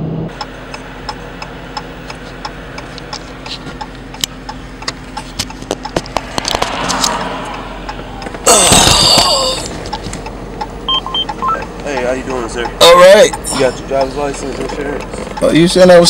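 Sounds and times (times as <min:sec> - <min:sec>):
car engine idling hum: 0:00.0 - 0:16.0
indicator flasher ticking: 0:00.3 - 0:03.2, 0:03.8 - 0:08.4, 0:09.5 - 0:16.0
sudden rush of noise: 0:06.1 - 0:09.0.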